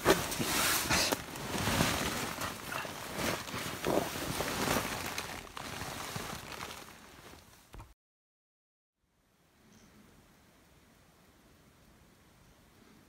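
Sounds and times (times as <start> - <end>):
tent canvas door rustling: 0.0 - 8.0.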